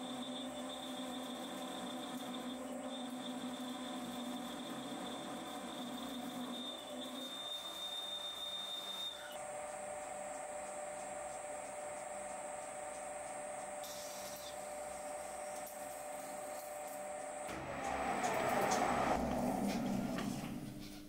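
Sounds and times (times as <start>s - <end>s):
lathe drilling metal whine: 0.0s - 9.4s, 17.4s - 20.9s.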